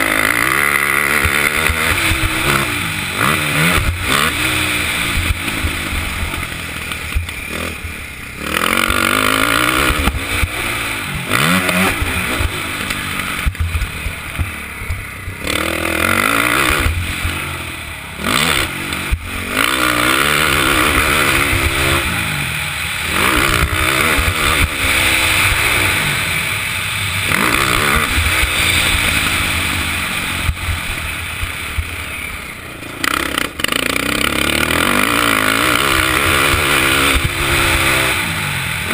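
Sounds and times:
atv engine revving: 0.0 - 38.9.

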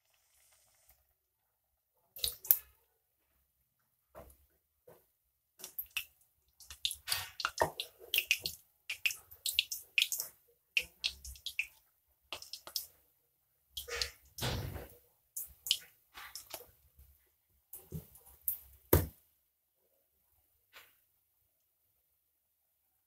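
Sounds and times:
batter frying in hot oil: 0.0 - 1.1, 6.6 - 13.0.

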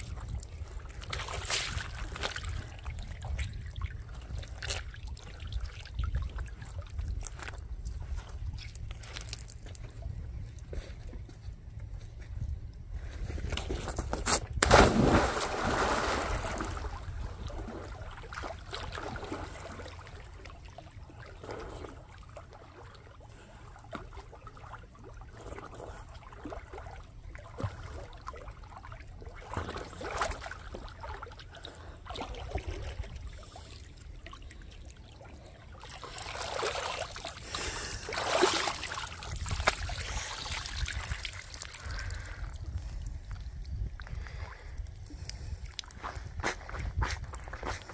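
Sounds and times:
lake water splashing at shore: 14.6 - 23.6, 24.3 - 42.4.

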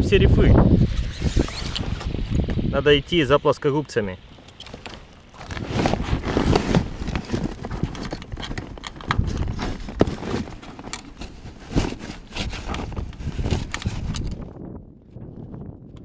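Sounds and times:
sail cloth rustling: 4.4 - 14.5.

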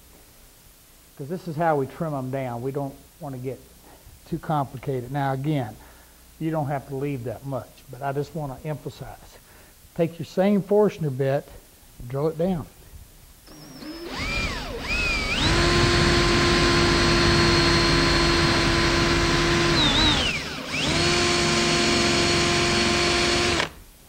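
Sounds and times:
power drill boring into wood: 13.5 - 23.8.

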